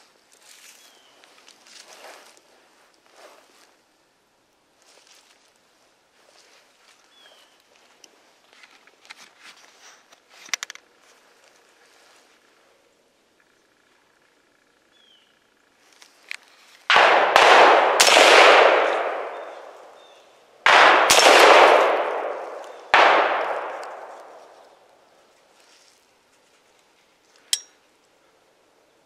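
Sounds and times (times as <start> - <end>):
gunshots with echo: 16.9 - 24.8.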